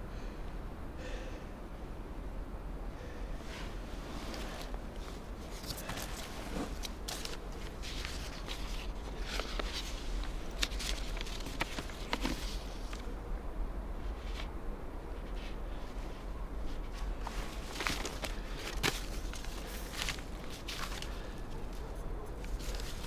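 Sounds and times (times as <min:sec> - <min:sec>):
paper crinkling and rustling: 0:04.2 - 0:13.1, 0:15.2 - 0:23.0.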